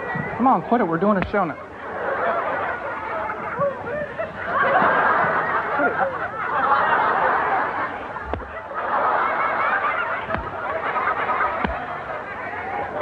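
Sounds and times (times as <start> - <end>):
audience laughing and chattering: 0.0 - 13.0
dull knocks: 11.6 - 11.9.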